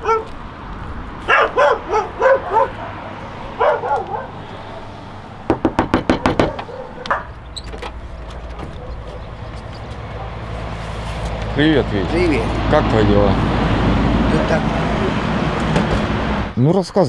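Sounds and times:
dog barking: 0.0s - 0.3s, 1.3s - 4.5s, 6.4s - 7.3s, 8.7s - 9.3s, 10.1s - 10.4s
fist knocking on metal door: 5.5s - 6.7s.

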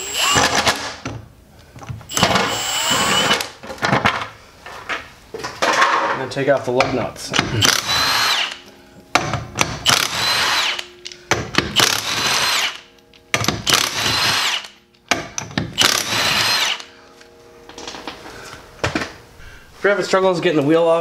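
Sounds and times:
impact wrench whining: 0.0s - 1.0s, 2.0s - 3.6s, 7.4s - 17.0s.

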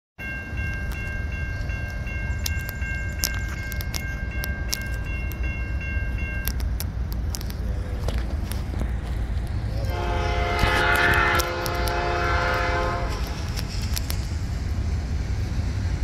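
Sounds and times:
crossing warning bell ringing: 0.2s - 7.8s, 9.8s - 13.4s.

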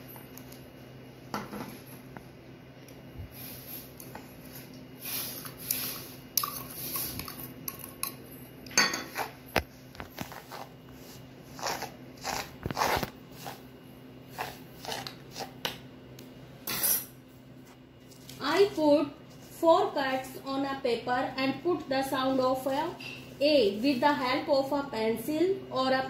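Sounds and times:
metal spoon scraping salt: 10.3s - 13.6s, 14.3s - 15.5s.

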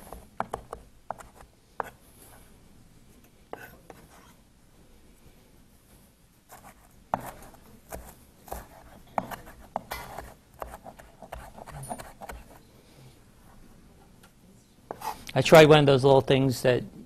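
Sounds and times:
knife chopping on wooden board: 7.1s - 12.5s.

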